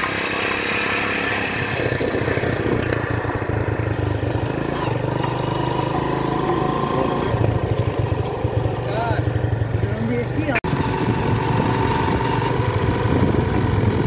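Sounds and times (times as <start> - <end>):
engine running steadily: 0.0 - 14.0.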